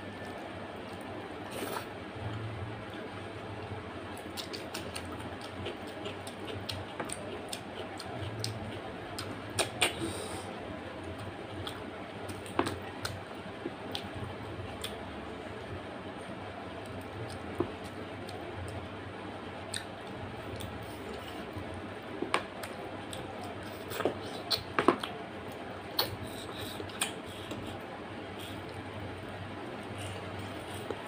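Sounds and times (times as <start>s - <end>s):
low background hum: 0.0s - 31.0s
wet chewing and lip smacks: 4.2s - 10.0s.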